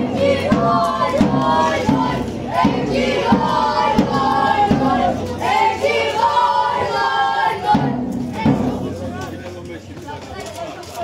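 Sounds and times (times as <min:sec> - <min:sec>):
crowd chanting: 0:00.0 - 0:09.2
steady drum beat: 0:00.0 - 0:10.2.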